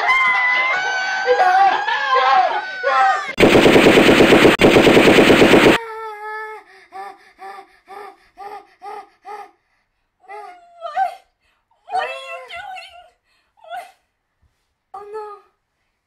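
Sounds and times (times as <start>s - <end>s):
machine-gun fire: 3.4s - 5.8s.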